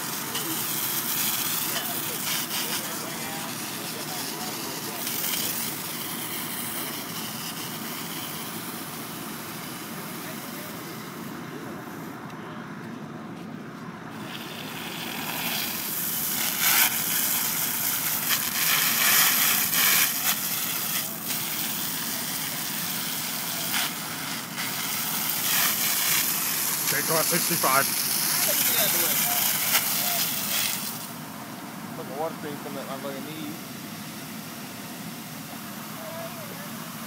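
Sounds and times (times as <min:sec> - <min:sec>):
water stream hissing from nozzle: 0:00.0 - 0:11.2, 0:14.1 - 0:31.2
fire engine pump running: 0:00.0 - 0:37.0.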